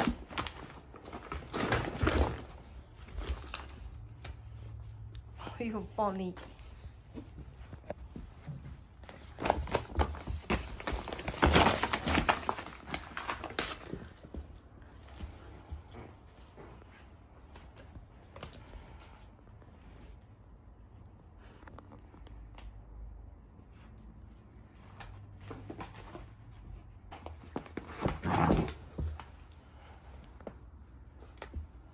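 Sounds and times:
wrapping paper crinkling and tearing: 9.3 - 14.1.

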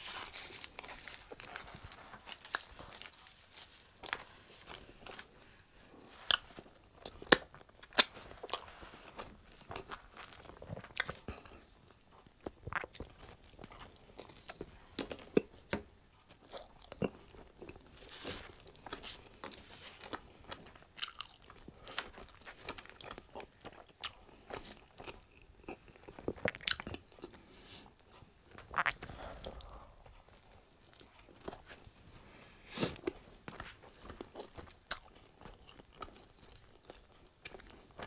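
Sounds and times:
person chewing pizza: 0.0 - 38.0
crunchy crust bites: 6.2 - 11.7.

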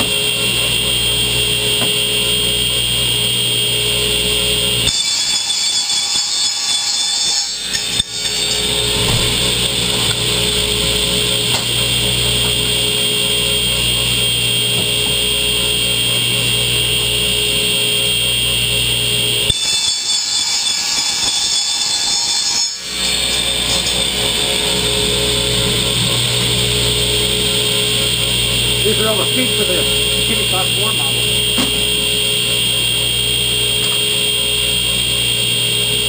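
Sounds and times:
radial arm saw motor whining: 0.0 - 36.0
low hum: 24.8 - 36.0.

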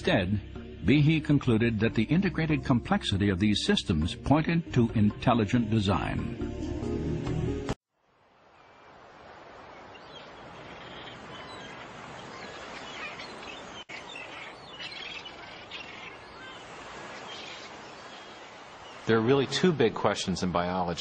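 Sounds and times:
rushing sea noise: 8.1 - 21.0
gulls calling: 9.6 - 21.0.

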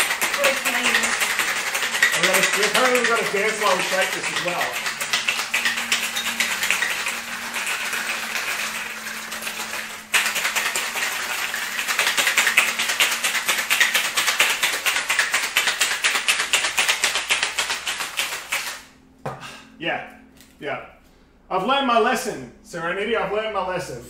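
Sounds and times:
ice rattling in cocktail shaker: 0.0 - 18.9.

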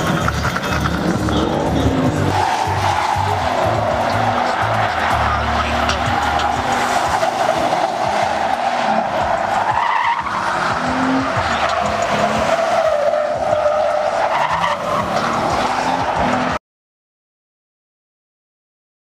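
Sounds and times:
music with low bass line: 0.0 - 9.6
tyres squealing: 0.0 - 16.6.

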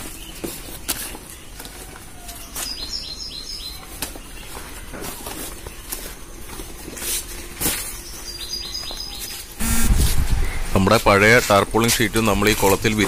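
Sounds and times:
bird chirping: 8.0 - 11.2.

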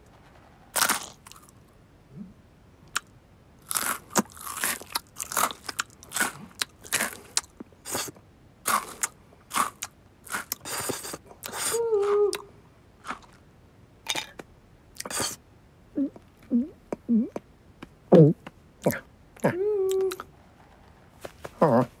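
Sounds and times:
cartoon cat crunchy munching: 0.7 - 1.5, 3.0 - 8.1, 8.7 - 12.4.

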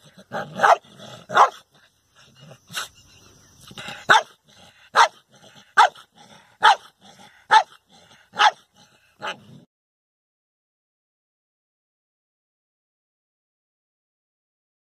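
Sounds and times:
dog barking: 0.2 - 1.6, 4.0 - 9.6.

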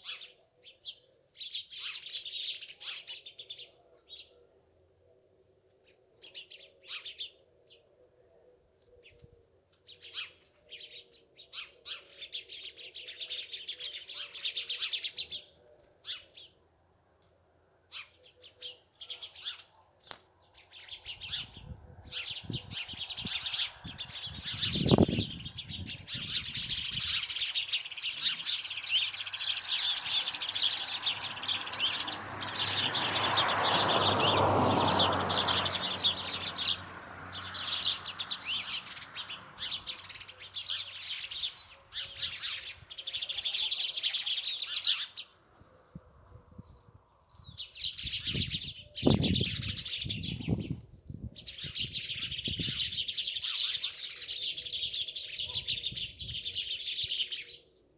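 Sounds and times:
sparrows chirping: 0.0 - 4.5, 5.7 - 8.0, 8.6 - 57.9.

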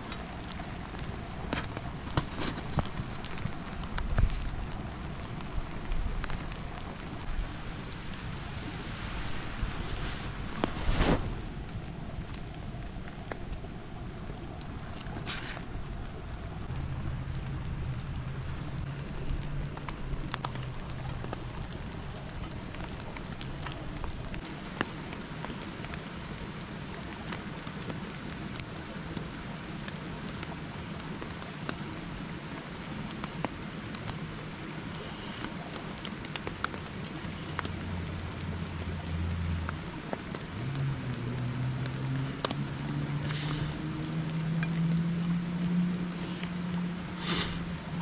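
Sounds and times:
low hum: 0.0 - 24.4
sharp ticks of raindrops: 0.0 - 48.0
steady rain falling: 0.0 - 48.0.

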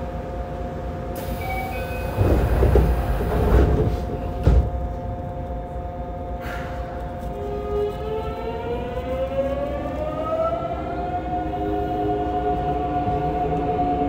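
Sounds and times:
train inverter rising whine: 0.0 - 14.0
train doors sliding shut: 1.2 - 5.0.

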